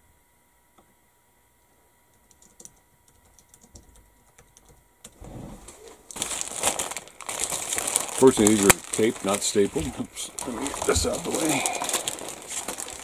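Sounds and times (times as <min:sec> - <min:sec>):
plastic bag crinkling: 0:05.7 - 0:13.0.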